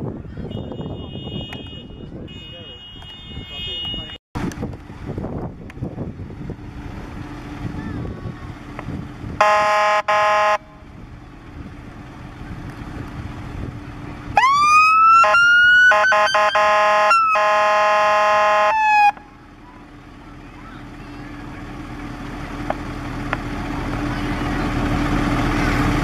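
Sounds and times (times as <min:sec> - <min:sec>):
bullhorn blasts: 0:00.4 - 0:04.2, 0:09.4 - 0:10.9, 0:15.2 - 0:19.2
fire engine idling: 0:04.5 - 0:26.0
siren wailing: 0:14.4 - 0:19.2.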